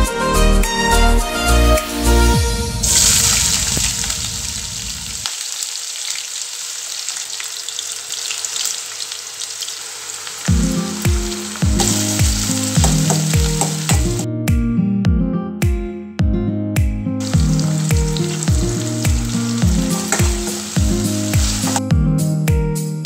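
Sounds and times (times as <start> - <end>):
background music with beat: 0.0 - 3.0, 10.5 - 23.0
onions sizzling in oil: 2.8 - 14.2, 17.2 - 21.8
spoon stirring: 11.5 - 14.2.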